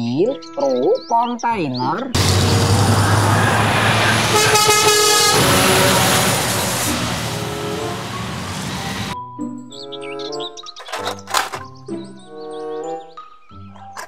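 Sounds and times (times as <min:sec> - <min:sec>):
truck driving past: 0:02.2 - 0:09.2
truck horn: 0:02.2 - 0:09.2.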